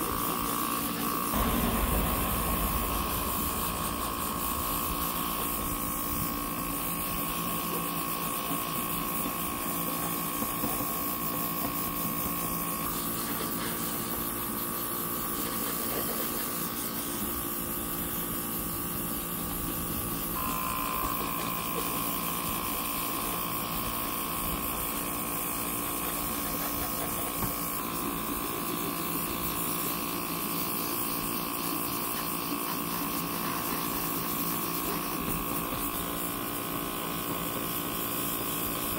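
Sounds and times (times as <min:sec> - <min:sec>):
small compressor motor whine: 0:20.3 - 0:23.7.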